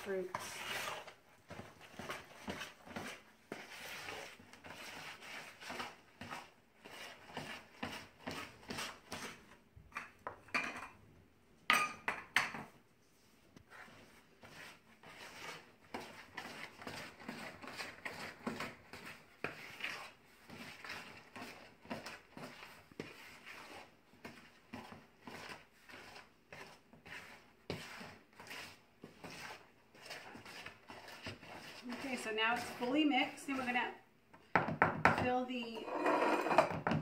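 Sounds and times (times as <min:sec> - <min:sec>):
wooden spoon scraping bowl: 0:00.0 - 0:10.4, 0:13.1 - 0:34.0, 0:35.2 - 0:37.0.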